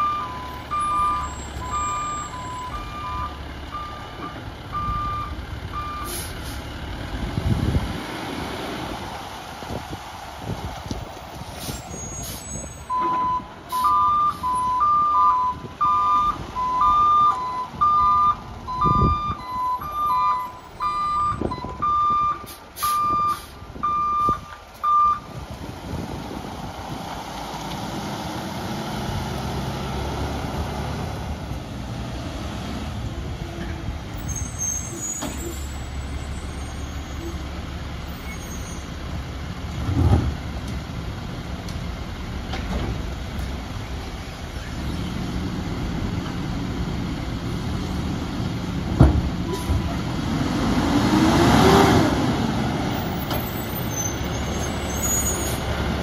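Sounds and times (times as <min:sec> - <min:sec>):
truck backup alarms beeping: 0:00.0 - 0:06.4, 0:11.9 - 0:25.4.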